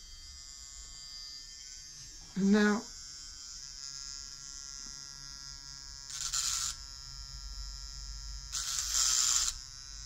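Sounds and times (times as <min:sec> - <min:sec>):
small motor whining: 0:00.0 - 0:10.0.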